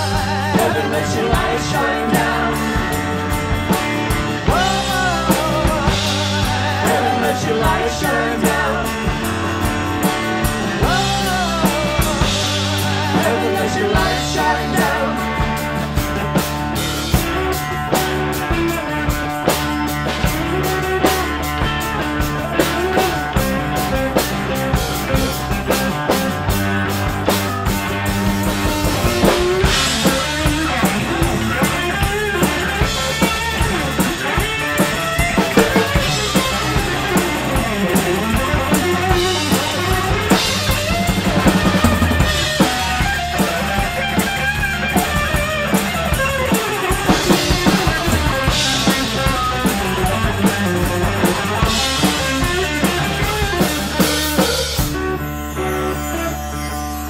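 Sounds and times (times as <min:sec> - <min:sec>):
steady drum beat: 0:00.0 - 0:55.1
electric bass: 0:00.0 - 0:57.0
electric guitar: 0:00.0 - 0:57.0.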